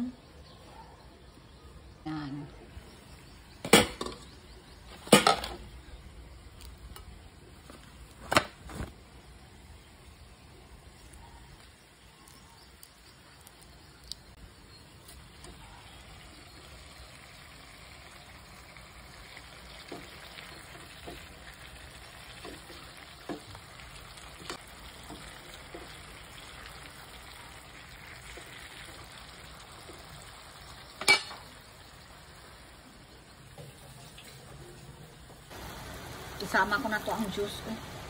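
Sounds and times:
food sizzling in a frying pan: 14.8s - 38.0s.

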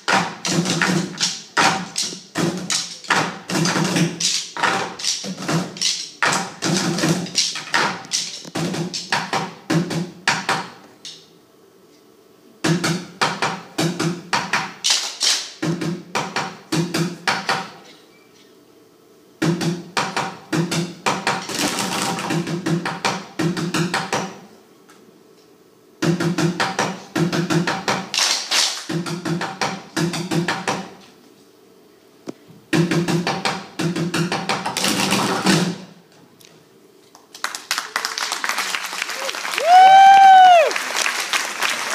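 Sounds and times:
drumming on plastic buckets: 0.0s - 10.7s, 15.6s - 17.7s.

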